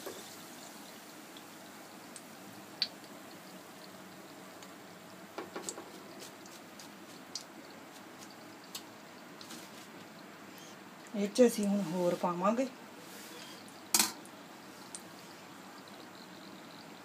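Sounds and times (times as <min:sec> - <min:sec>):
frying oil sizzling: 0:00.0 - 0:17.0
oil crackles: 0:05.6 - 0:10.1.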